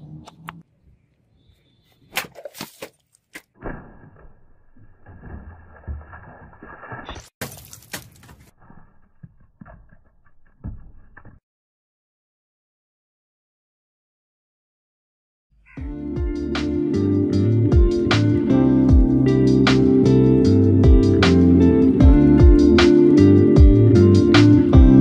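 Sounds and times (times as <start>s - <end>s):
sword slicing plastic bottles: 2.1s - 4.4s
water splashing: 3.6s - 8.4s.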